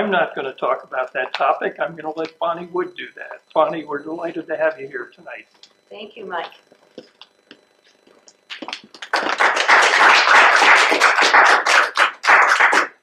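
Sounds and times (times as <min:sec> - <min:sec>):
audience applauding: 0:08.5 - 0:13.0.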